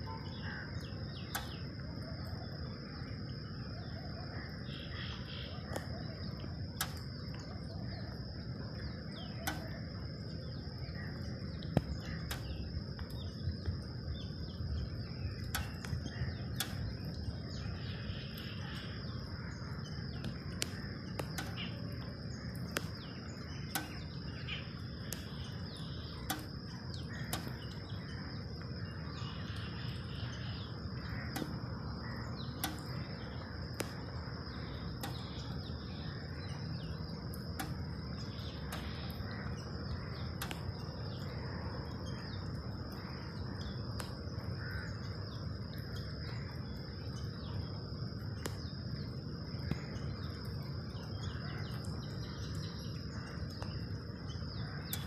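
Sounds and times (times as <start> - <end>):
faint bird chirps: 0.0 - 55.0
sharp clicks: 1.3 - 1.6, 6.8 - 7.4, 9.3 - 9.8, 11.6 - 13.8, 15.4 - 17.3, 20.2 - 24.2, 25.0 - 27.9, 31.0 - 35.9, 36.8 - 41.4, 43.6 - 44.2, 48.4 - 48.7.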